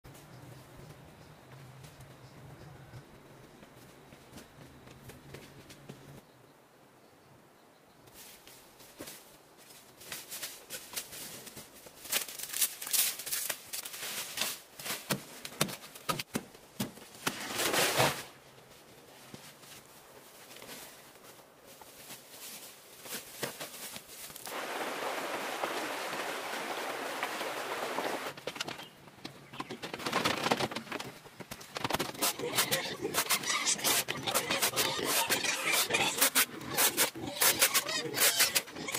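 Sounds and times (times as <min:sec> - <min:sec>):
stream rushing over rocks: 0:24.5 - 0:28.4.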